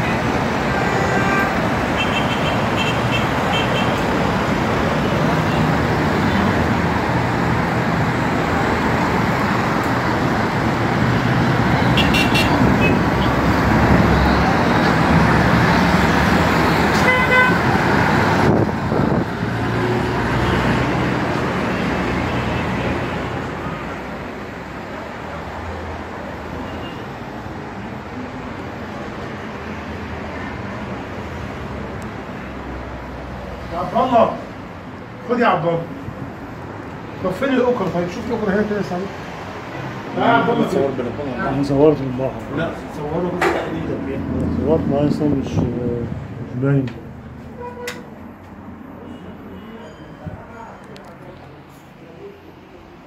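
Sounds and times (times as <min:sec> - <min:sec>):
car horns: 0:00.0 - 0:04.1, 0:11.8 - 0:13.5, 0:16.7 - 0:17.7, 0:26.6 - 0:27.1, 0:47.5 - 0:48.1
passing cars: 0:00.0 - 0:53.0.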